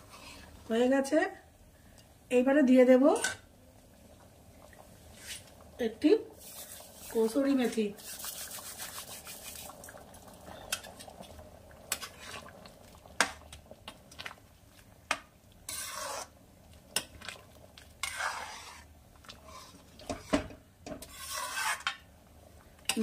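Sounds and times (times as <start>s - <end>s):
metal spoon stirring in pan: 6.4s - 9.7s, 11.9s - 12.6s, 15.1s - 22.0s.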